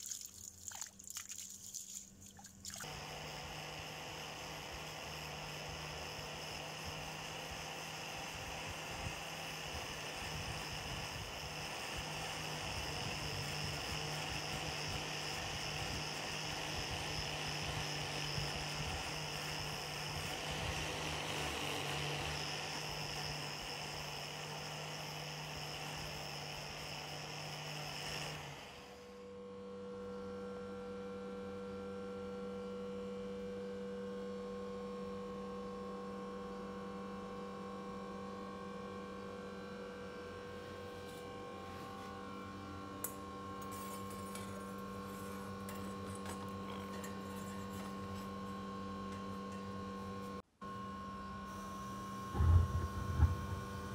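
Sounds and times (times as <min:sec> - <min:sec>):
electric hum: 0:51.6 - 0:53.9.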